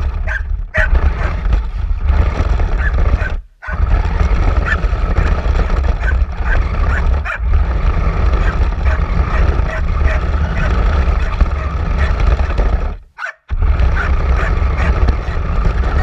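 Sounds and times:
toy car rumbling over concrete: 0.0 - 16.0
dog barking: 0.2 - 1.4, 2.8 - 3.8, 6.0 - 7.4, 13.2 - 15.4.

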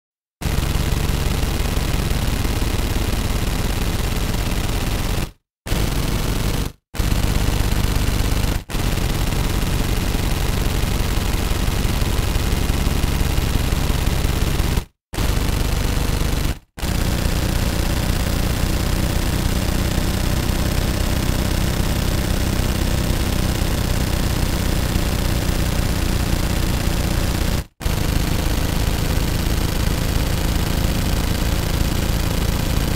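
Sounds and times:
automatic gunfire: 0.4 - 32.9.

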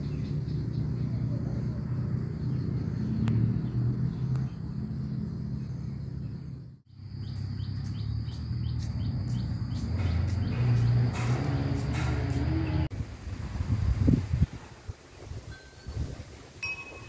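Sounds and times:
birds chirping: 0.0 - 12.9
low engine rumble: 0.0 - 15.1.

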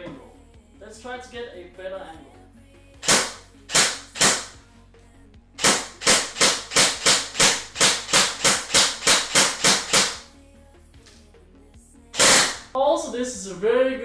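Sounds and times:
airsoft gun shots: 3.0 - 4.6, 5.6 - 10.2, 12.2 - 12.7.

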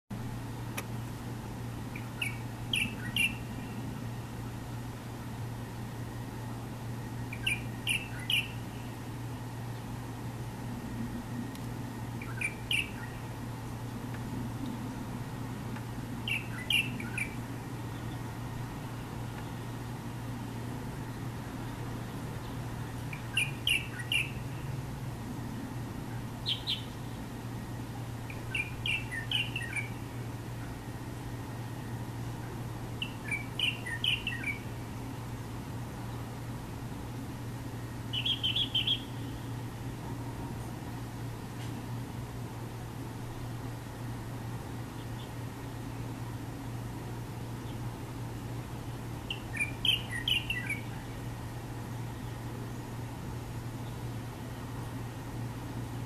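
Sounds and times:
steady low hum: 0.1 - 56.0
bulbul singing: 1.8 - 4.2, 7.0 - 9.7, 12.0 - 13.5, 15.8 - 19.8, 22.3 - 24.7, 26.1 - 27.4, 28.1 - 35.0, 37.8 - 39.8, 49.0 - 51.3.

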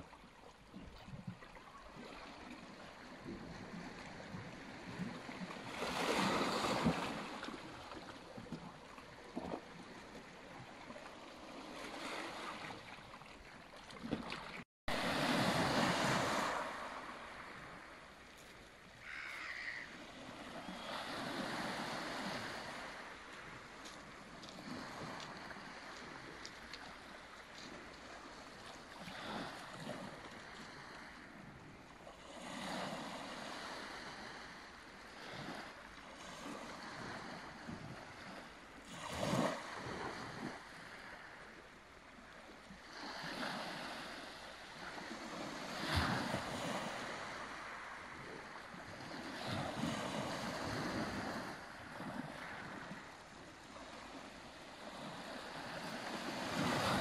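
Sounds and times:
waves lapping on pebble beach: 0.0 - 57.0.

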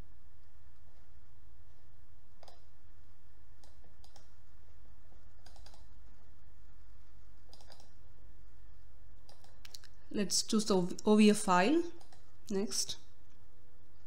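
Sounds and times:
steady low hum: 0.0 - 14.0
computer mouse clicking: 2.4 - 2.7, 3.6 - 4.4, 5.1 - 6.0, 7.4 - 8.0, 9.2 - 10.0, 12.0 - 12.6.

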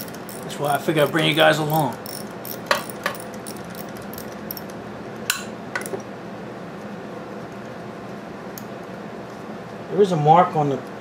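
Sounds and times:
wrench clinking on metal: 0.0 - 4.7.

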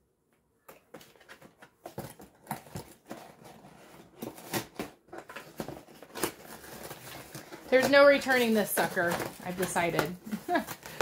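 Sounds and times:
cardboard box rustling and scraping: 1.8 - 10.1.

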